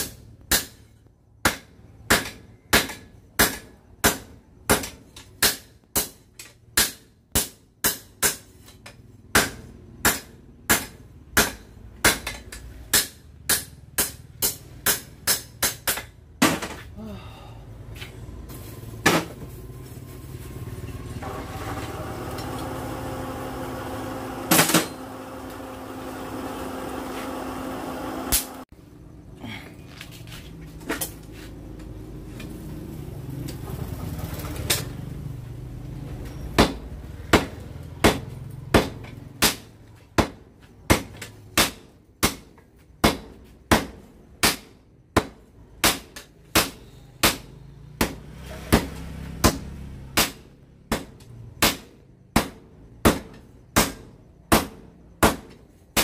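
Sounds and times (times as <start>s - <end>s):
hammer striking hot metal on anvil: 0.0s - 6.2s, 6.8s - 8.7s, 9.3s - 16.1s
machine hum: 18.6s - 29.5s.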